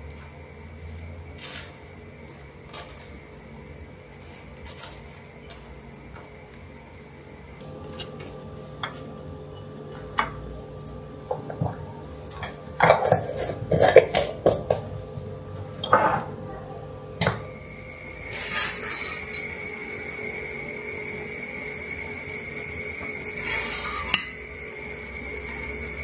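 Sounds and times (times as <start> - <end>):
ladle stirring in a saucepan: 7.8 - 15.4.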